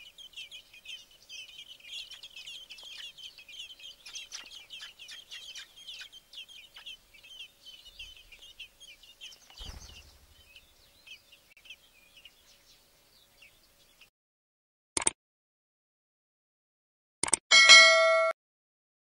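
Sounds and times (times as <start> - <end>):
nestlings chirping: 0.0 - 14.1.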